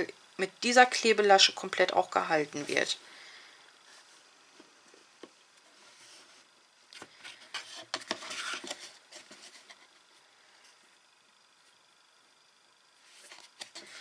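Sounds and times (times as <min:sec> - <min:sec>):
paper and cardboard rustling: 0:07.0 - 0:10.0.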